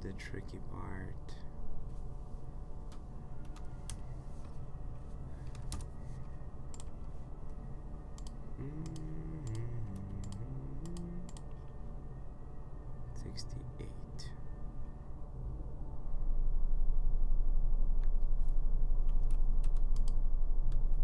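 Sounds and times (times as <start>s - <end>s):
steady low hum: 0.0s - 21.0s
keyboard and mouse clicks: 8.2s - 11.5s
low voice humming: 8.5s - 11.7s.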